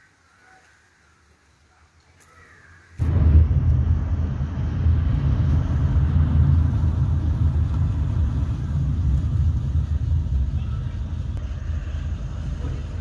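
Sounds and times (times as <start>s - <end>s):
car engine and tyres rumbling: 3.0s - 13.0s.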